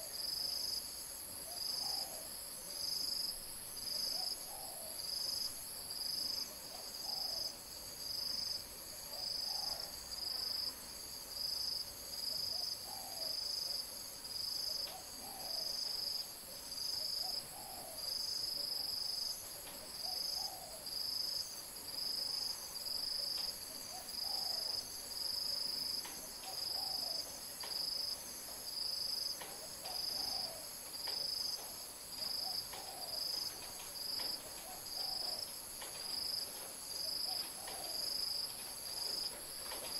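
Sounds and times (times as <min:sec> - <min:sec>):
insects whining: 0:00.0 - 0:39.9.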